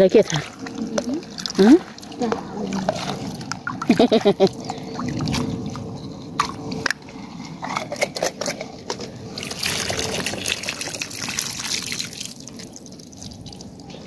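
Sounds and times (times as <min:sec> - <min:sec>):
muddy water pouring onto ground: 0:00.0 - 0:05.8, 0:09.3 - 0:14.0
water sloshing in plastic jar: 0:00.1 - 0:07.0.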